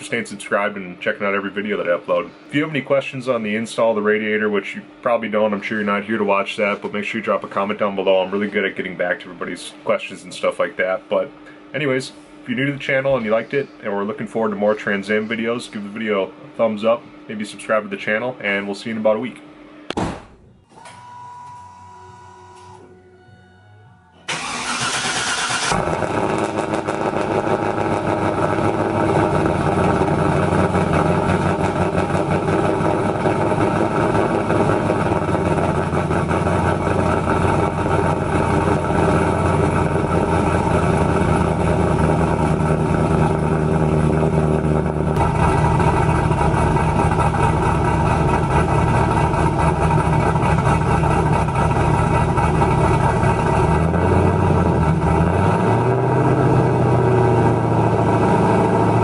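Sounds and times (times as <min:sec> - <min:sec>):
car engine starting and idling: 0:24.2 - 0:59.0.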